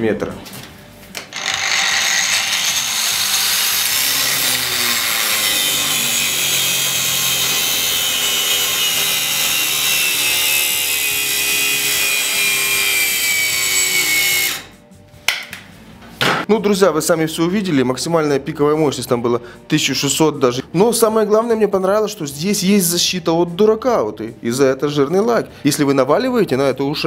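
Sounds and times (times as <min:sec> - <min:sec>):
angle grinder grinding steel: 0:01.3 - 0:14.8.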